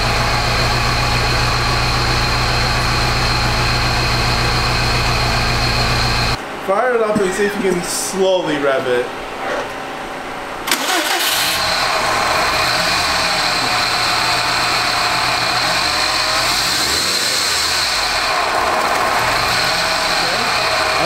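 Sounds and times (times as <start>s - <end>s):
car engine starting and running: 0.0s - 6.4s, 10.6s - 21.0s.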